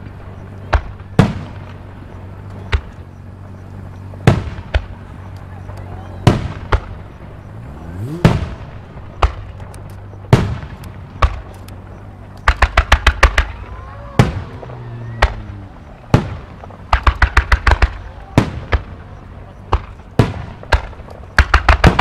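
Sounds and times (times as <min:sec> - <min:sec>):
crackling firework bangs: 0:00.0 - 0:22.0
firework shells booming: 0:00.0 - 0:22.0
rising firework whistle: 0:12.8 - 0:16.8.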